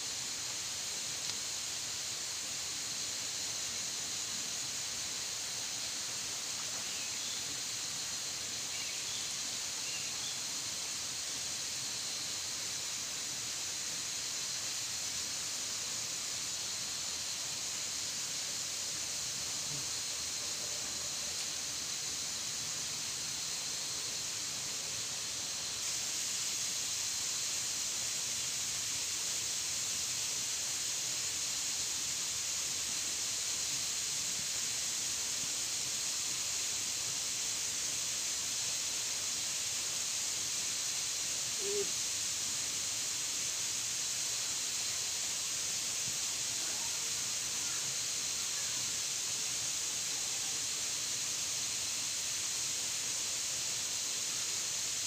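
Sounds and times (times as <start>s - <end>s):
high-pitched outdoor hiss: 0.0s - 55.0s
low hoot-like call: 41.6s - 42.0s.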